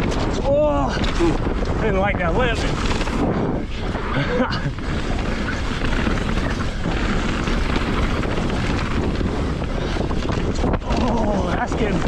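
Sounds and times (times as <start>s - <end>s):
bike tyres and frame rattling: 0.0s - 12.0s
wind rushing over microphone: 0.0s - 12.0s.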